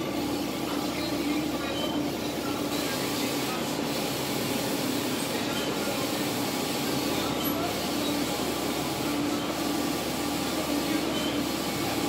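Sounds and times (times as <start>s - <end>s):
printer motors whirring hum: 0.0s - 12.0s.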